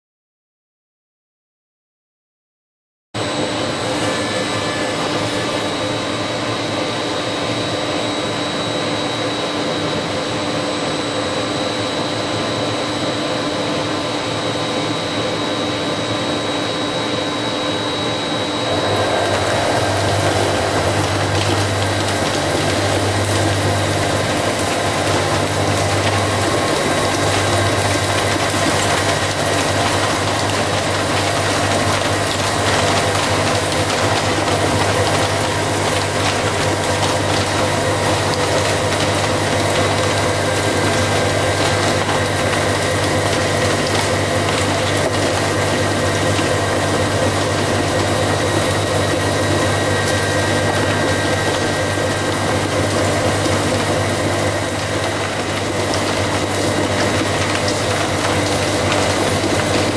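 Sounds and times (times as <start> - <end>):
face mill cutting metal: 3.2 - 7.7, 16.8 - 59.9
boring mill whining: 3.2 - 59.9.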